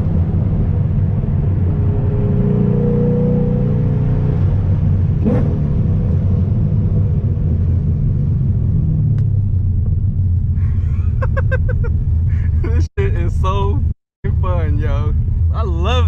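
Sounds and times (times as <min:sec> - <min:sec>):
car engine and exhaust rumbling: 0:00.0 - 0:16.0.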